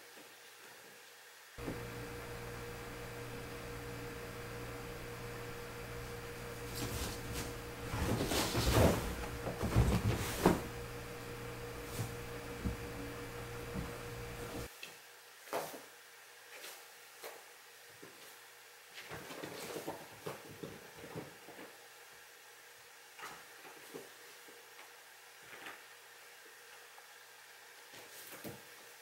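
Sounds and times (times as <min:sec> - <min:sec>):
fabric rustling: 0:01.6 - 0:14.7
steady room hum: 0:01.6 - 0:14.7.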